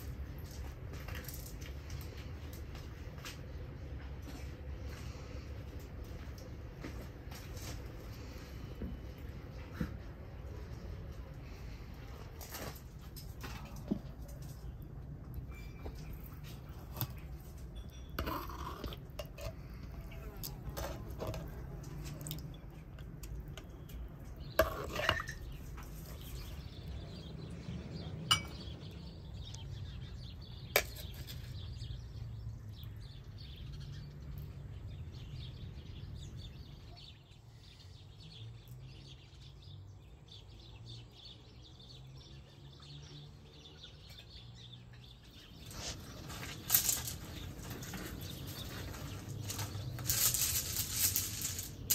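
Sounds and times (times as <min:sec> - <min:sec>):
metal ladle clinking on ceramic: 0:28.3 - 0:28.6.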